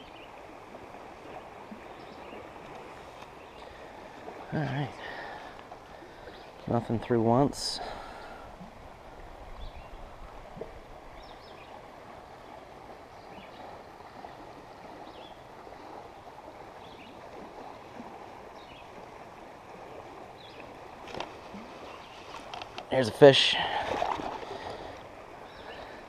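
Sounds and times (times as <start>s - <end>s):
creek water flowing: 0.0s - 26.0s.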